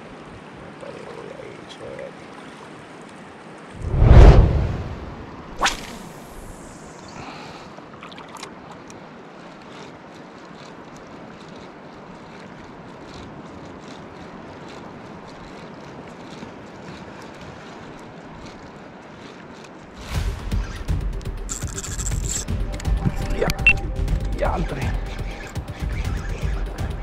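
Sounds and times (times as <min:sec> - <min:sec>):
small waves lapping: 0:00.0 - 0:03.8, 0:04.7 - 0:20.5
wind: 0:00.0 - 0:27.0.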